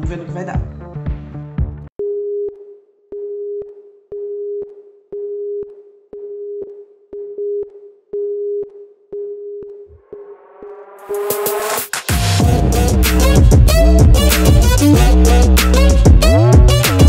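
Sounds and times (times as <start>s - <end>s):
music: 0.0s - 1.9s, 11.0s - 17.0s.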